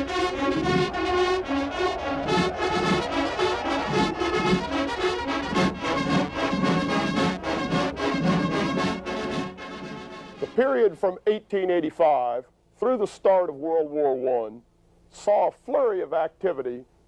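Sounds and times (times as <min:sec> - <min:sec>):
theme music with brass and beat: 0:00.0 - 0:10.6.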